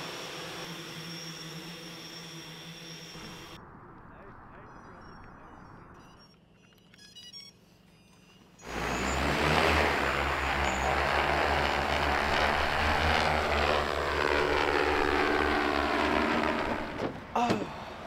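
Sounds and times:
drone propellers buzzing: 0:00.0 - 0:03.6, 0:08.6 - 0:18.0.

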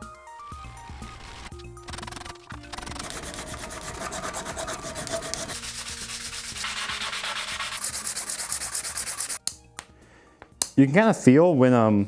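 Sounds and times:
hand sanding on sandpaper: 0:02.2 - 0:09.4.

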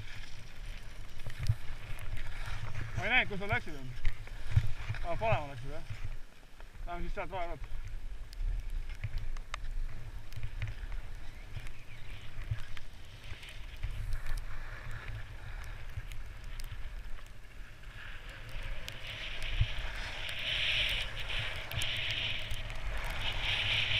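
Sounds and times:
skis scraping over snow: 0:00.0 - 0:23.9
wind rumble on microphone: 0:00.0 - 0:23.9.

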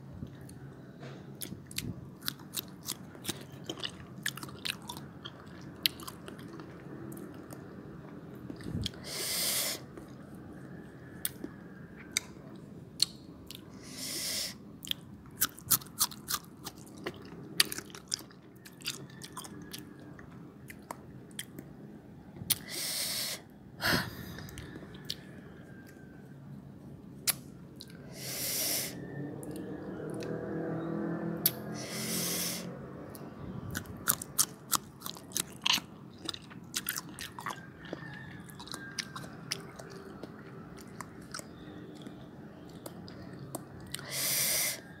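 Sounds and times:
crunchy chewing: 0:00.3 - 0:07.7, 0:08.4 - 0:21.6, 0:33.1 - 0:45.0
short hissing breaths: 0:09.0 - 0:09.8, 0:13.8 - 0:14.6, 0:22.6 - 0:24.1, 0:28.1 - 0:29.0, 0:31.7 - 0:32.7, 0:44.0 - 0:44.8.

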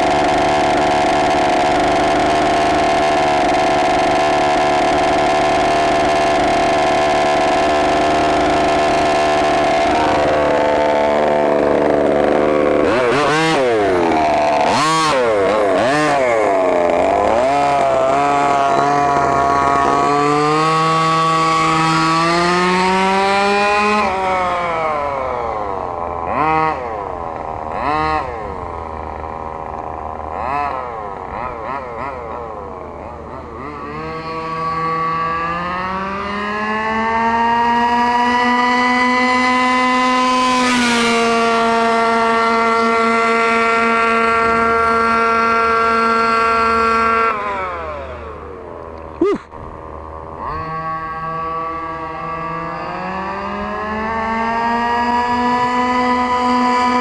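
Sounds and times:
small two-stroke engine revving: 0:00.0 - 0:57.0.

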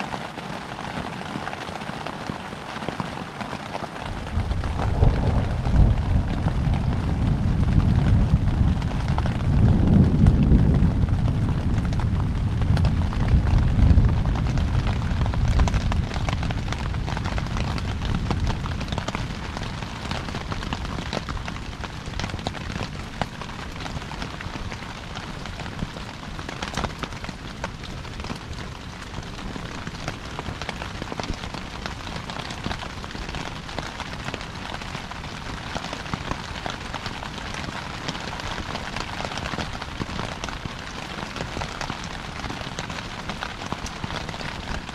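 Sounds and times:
heavy rain on a tent: 0:00.0 - 0:44.9
thunder rumbling: 0:04.0 - 0:26.0.

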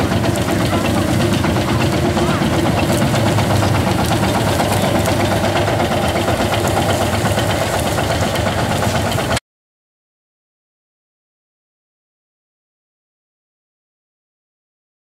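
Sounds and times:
tractor engine under load: 0:00.0 - 0:09.4.

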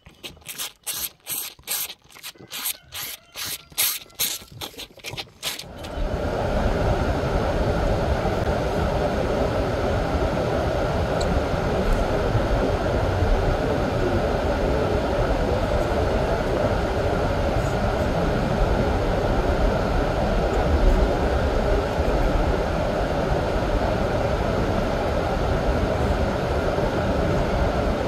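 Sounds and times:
calf sucking and slurping: 0:00.0 - 0:06.1.

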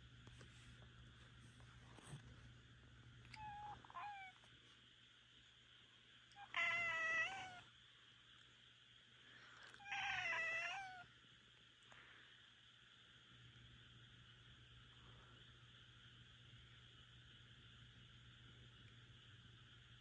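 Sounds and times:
cat meowing: 0:03.3 - 0:04.4, 0:06.4 - 0:07.6, 0:09.8 - 0:11.0.

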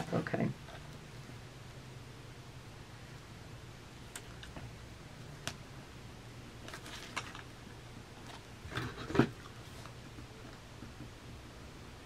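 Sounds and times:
soft paper rustling: 0:06.6 - 0:07.5.

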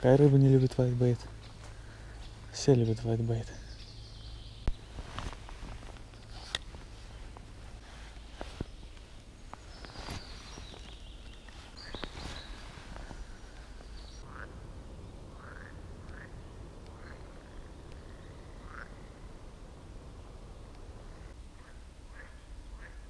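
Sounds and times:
frogs croaking: 0:14.2 - 0:19.3, 0:21.0 - 0:23.0.

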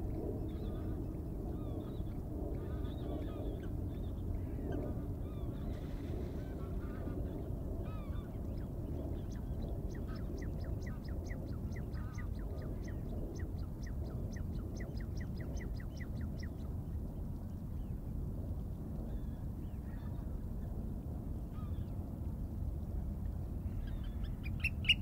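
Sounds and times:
bird calls: 0:23.8 - 0:25.0.

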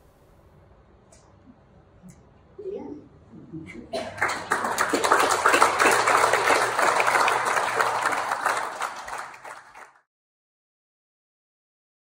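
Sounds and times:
audience applauding: 0:04.0 - 0:10.1.

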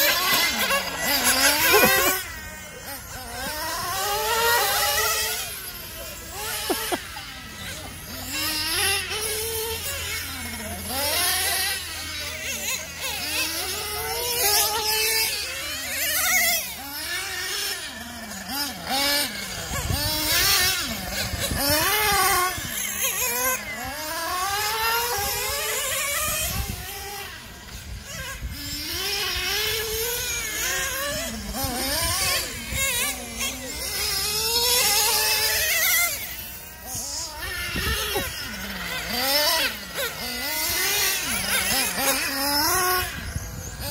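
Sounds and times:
rc car engines revving: 0:00.0 - 0:43.9.

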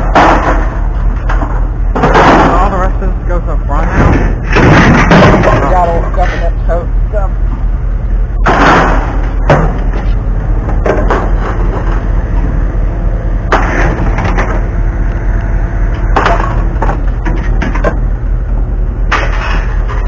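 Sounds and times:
low rumble: 0:00.0 - 0:20.0
scrap metal clanking: 0:19.1 - 0:20.0.

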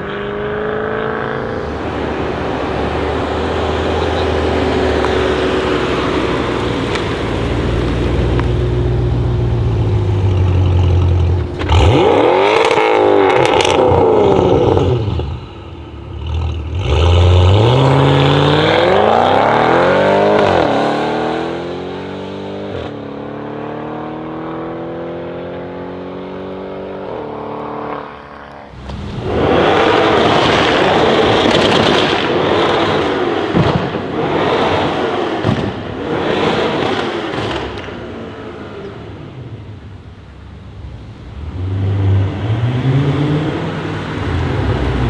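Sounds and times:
car engine accelerating: 0:00.0 - 0:45.0
exhaust pops: 0:10.2 - 0:13.9, 0:28.7 - 0:38.2.

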